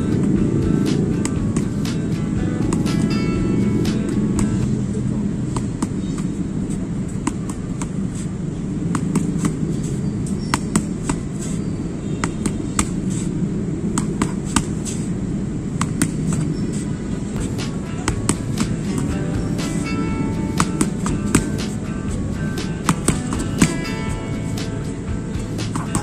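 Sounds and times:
boxing gloves slapping punch mitts: 0.0 - 4.8, 5.4 - 11.6, 12.2 - 13.3, 13.9 - 15.1, 15.8 - 24.8, 25.4 - 26.0
low rumble of city traffic: 0.0 - 26.0.

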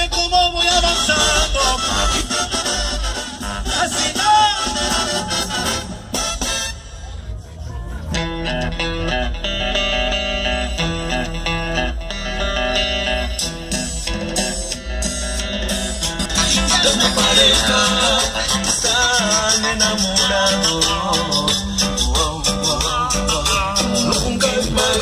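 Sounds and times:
deep bass: 0.0 - 25.0
plucked guitar notes: 7.9 - 25.0.

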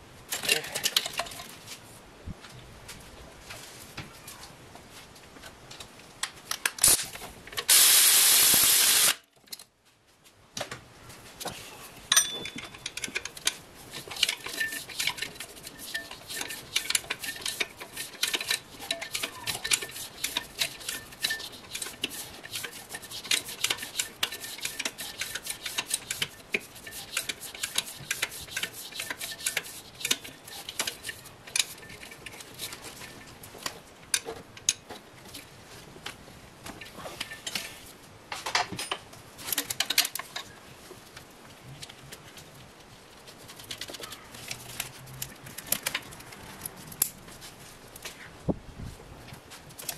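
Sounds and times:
loud hiss: 7.7 - 9.2
metal tools clinking: 12.1 - 22.0.

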